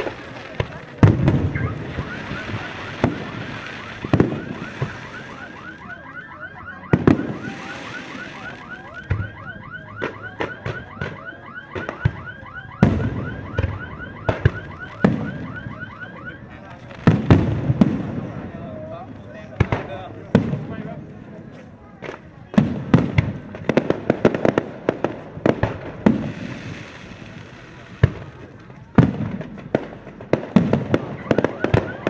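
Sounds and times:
fireworks bursting with bangs: 0:00.0 - 0:06.1, 0:06.7 - 0:21.2, 0:21.9 - 0:32.0
electronic alarm warbling: 0:01.5 - 0:16.4.

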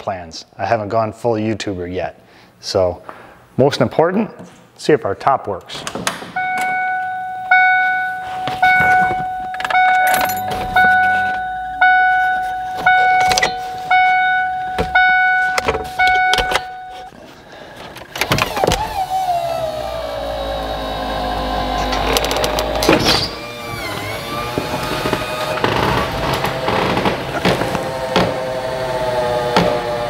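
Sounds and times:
car warning chime: 0:06.4 - 0:17.2
convertible top motor whine: 0:18.2 - 0:30.0.

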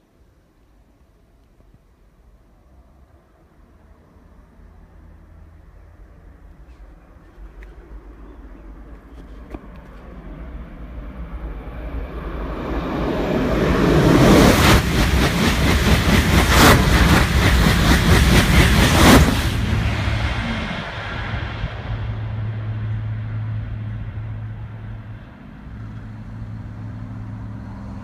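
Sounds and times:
high-speed train rushing past: 0:07.6 - 0:28.0.

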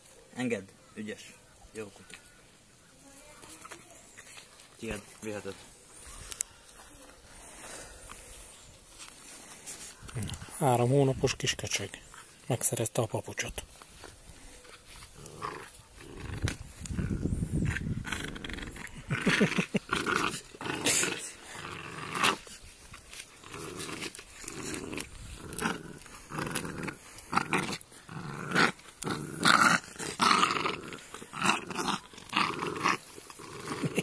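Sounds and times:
puppy growling: 0:15.2 - 0:22.5, 0:23.4 - 0:34.0.

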